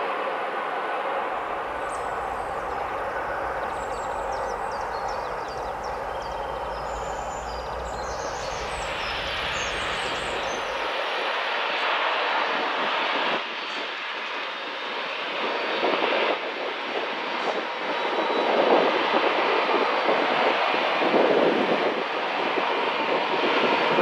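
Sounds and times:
jet engines roaring: 0:00.0 - 0:24.0
small birds chirping: 0:01.6 - 0:11.1.

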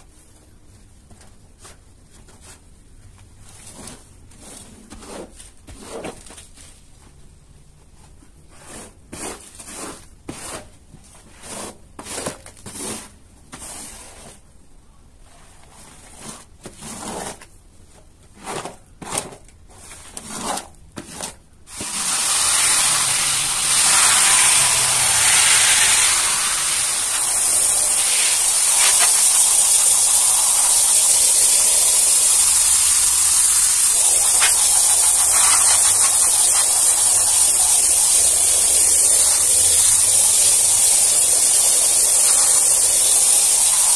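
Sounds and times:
squeegee dragged across wet rug: 0:08.5 - 0:14.4, 0:19.8 - 0:31.5
hiss of foam spraying: 0:21.7 - 0:43.9.

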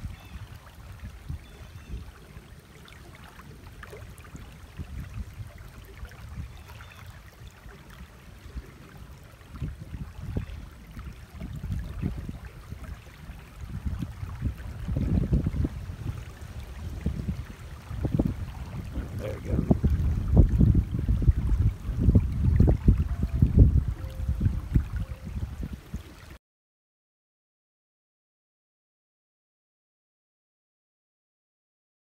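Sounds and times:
wind buffeting microphone: 0:00.0 - 0:02.7, 0:03.4 - 0:26.4.

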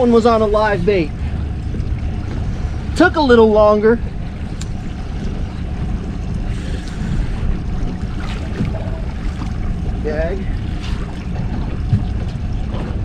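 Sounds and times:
water washing against boat hull: 0:00.0 - 0:13.0
wind buffeting microphone: 0:00.0 - 0:13.0.

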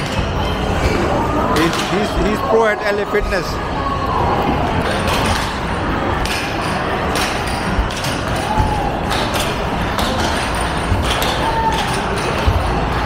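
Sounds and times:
crowd chatter: 0:00.0 - 0:13.0
basketballs thumping backboard and rim: 0:04.5 - 0:13.0.

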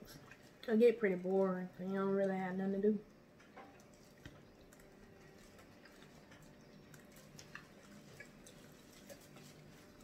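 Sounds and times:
food being chewed: 0:03.4 - 0:10.0.

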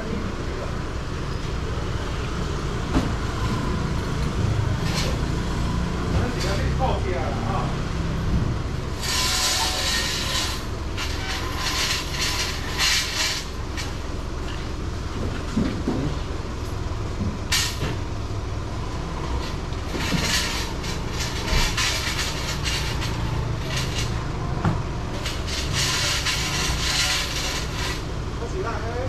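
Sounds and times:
low urban rumble: 0:00.0 - 0:29.0
hiss: 0:08.9 - 0:14.0, 0:25.2 - 0:28.1.

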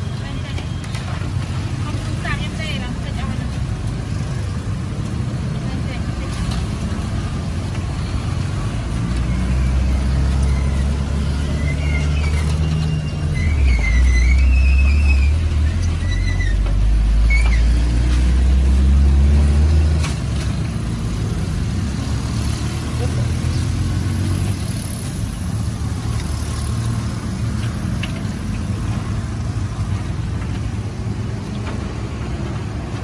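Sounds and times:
vehicle engine rumbling: 0:00.0 - 0:33.0.

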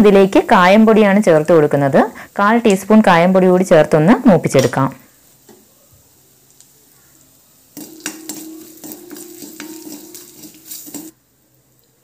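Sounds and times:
spices frying in oil: 0:00.0 - 0:12.0
metal spoon scraping a pan: 0:07.7 - 0:11.2.

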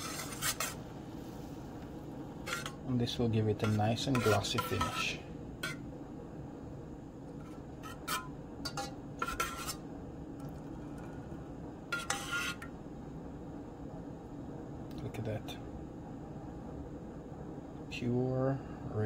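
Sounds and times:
metal spoon scraping a saucepan: 0:00.0 - 0:00.8, 0:02.4 - 0:05.8, 0:07.4 - 0:09.8, 0:11.9 - 0:12.7
steady low hum: 0:00.0 - 0:19.0.

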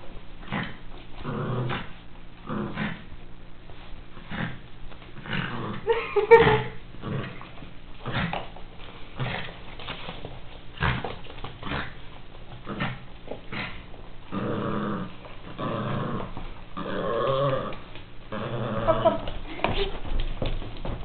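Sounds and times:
dog growling: 0:00.4 - 0:03.1, 0:04.2 - 0:08.5, 0:09.2 - 0:09.6, 0:10.8 - 0:12.0, 0:12.6 - 0:19.4.

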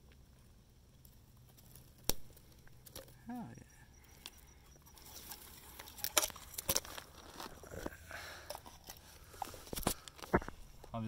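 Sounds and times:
twigs snapping: 0:01.0 - 0:03.2, 0:05.0 - 0:10.5
dry brush rustling and crackling: 0:04.9 - 0:11.0.

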